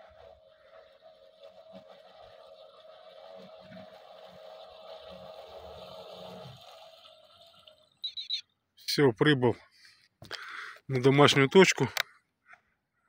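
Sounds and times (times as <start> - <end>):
electric motors whining: 0.0 - 8.4.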